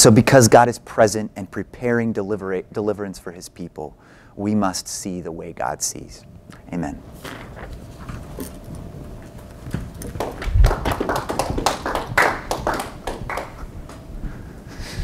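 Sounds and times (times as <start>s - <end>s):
people clapping: 9.8s - 14.0s.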